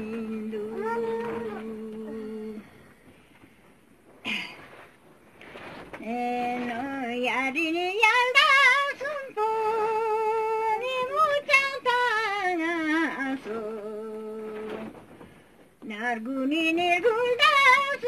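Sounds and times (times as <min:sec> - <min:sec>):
woman singing unaccompanied: 0:00.0 - 0:03.0, 0:06.0 - 0:15.0, 0:15.8 - 0:18.0.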